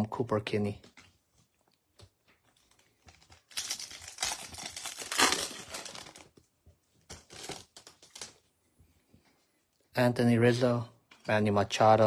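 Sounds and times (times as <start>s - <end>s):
wrapper crinkling and tearing: 2.4s - 6.5s, 7.1s - 8.5s.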